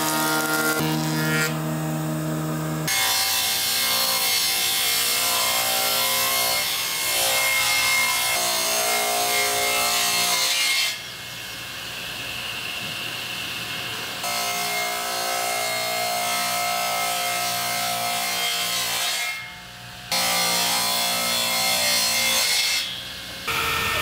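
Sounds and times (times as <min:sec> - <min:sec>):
table saw ripping boards: 0:00.0 - 0:01.7
jointer planing board: 0:00.0 - 0:11.0.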